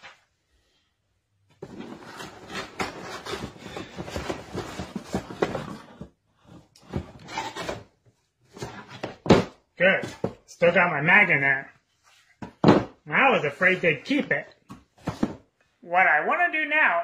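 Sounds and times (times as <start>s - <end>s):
cardboard packaging rubbing and scraping: 1.6s - 7.8s
knocks on box: 12.4s - 12.9s.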